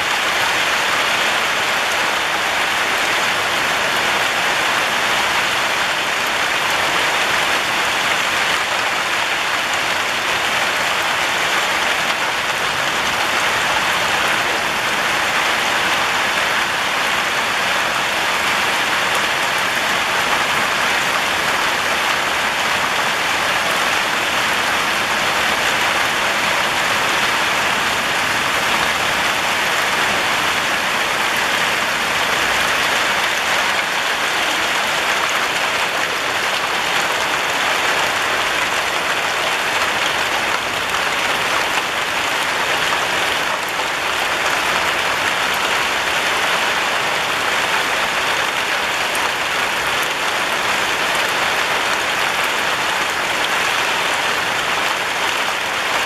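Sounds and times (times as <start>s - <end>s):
rain on tiled roofs: 0.0s - 56.0s.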